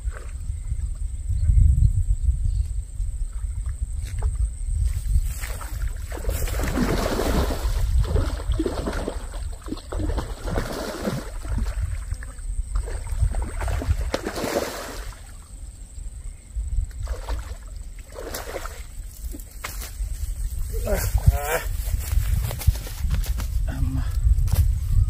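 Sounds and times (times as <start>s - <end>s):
wind rumble on microphone: 0.0s - 25.0s
fish thrashing and splashing: 5.5s - 12.2s.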